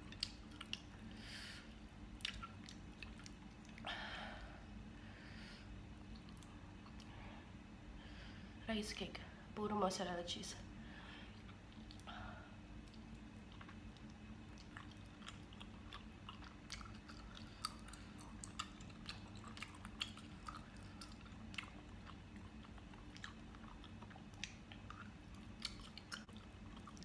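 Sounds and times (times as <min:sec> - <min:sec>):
wet chewing and lip smacks: 0:00.0 - 0:01.1, 0:01.7 - 0:03.8, 0:06.0 - 0:07.2, 0:11.3 - 0:12.1, 0:12.8 - 0:27.0.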